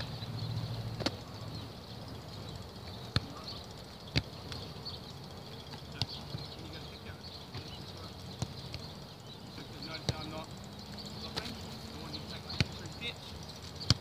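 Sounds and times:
thuds of kicked rugby ball: 0:01.0 - 0:01.2.

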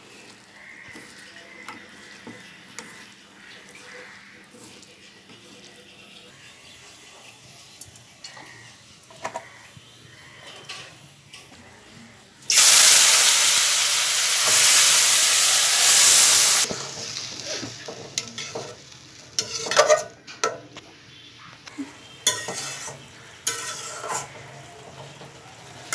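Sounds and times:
food sizzling in hot oil: 0:12.5 - 0:20.1, 0:22.0 - 0:25.9
spatula scraping and knocking wok: 0:12.5 - 0:20.6, 0:22.0 - 0:25.9.

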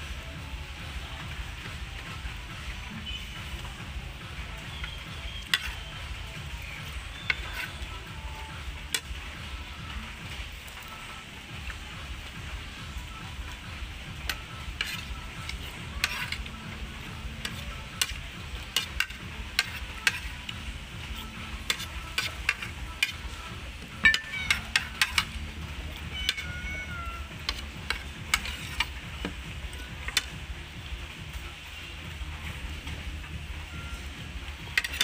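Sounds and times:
metal spoon scraping ceramic plate: 0:05.5 - 0:05.9, 0:06.8 - 0:07.8, 0:14.3 - 0:16.6, 0:17.3 - 0:20.4, 0:21.0 - 0:23.4, 0:24.0 - 0:25.4, 0:26.2 - 0:26.5, 0:27.4 - 0:29.0, 0:34.7 - 0:35.0.

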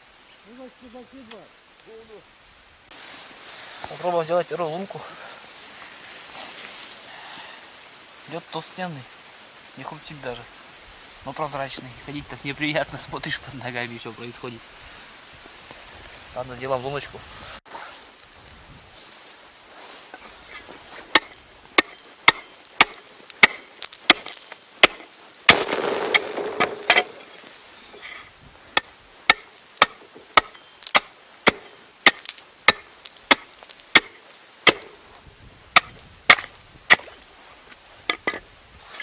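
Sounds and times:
hatchet chopping ice: 0:21.2 - 0:25.7, 0:28.8 - 0:35.0, 0:35.8 - 0:37.2.

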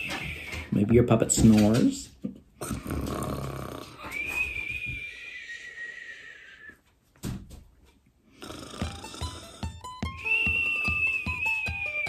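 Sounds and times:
man making pretend snore: 0:02.6 - 0:04.0, 0:08.4 - 0:09.8.

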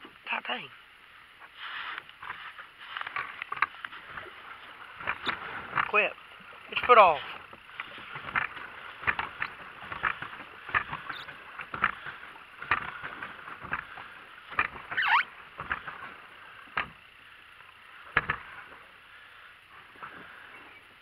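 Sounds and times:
water splashing against plastic boat: 0:03.0 - 0:17.0.

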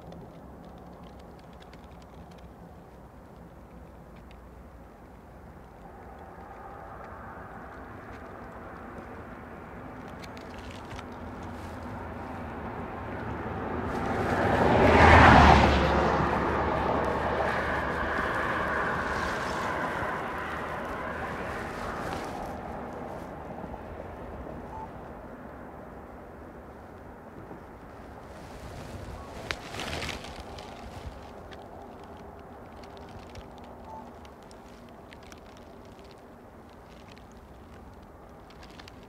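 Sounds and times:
vehicle passing by: 0:06.3 - 0:25.2, 0:27.6 - 0:32.1.

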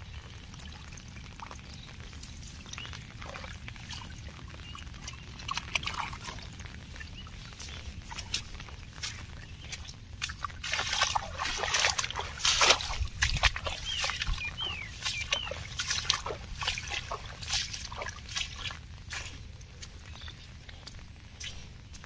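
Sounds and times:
footsteps through wet grass: 0:00.0 - 0:22.0
bird chirps: 0:13.6 - 0:17.3, 0:20.0 - 0:21.0.

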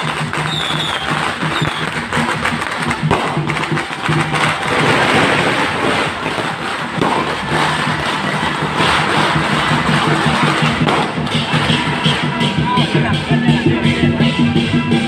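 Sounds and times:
firecrackers crackling: 0:00.0 - 0:15.0.

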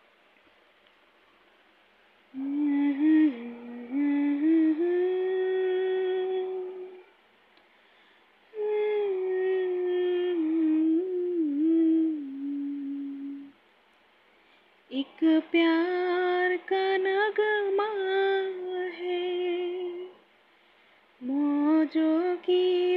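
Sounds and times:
woman humming a slow melody: 0:02.3 - 0:07.2, 0:08.5 - 0:13.6, 0:14.9 - 0:20.2, 0:21.2 - 0:22.9.

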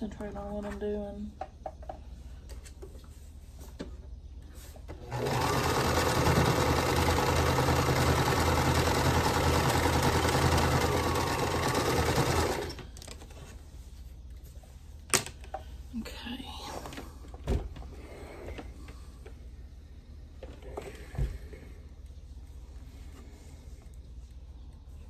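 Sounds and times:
sewing machine stitching: 0:05.0 - 0:12.9.

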